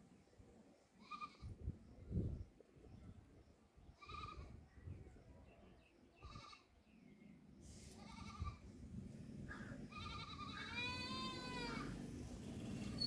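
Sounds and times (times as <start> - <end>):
parrot bleat-like calls: 4.0 - 4.6, 6.2 - 6.7, 9.9 - 11.9.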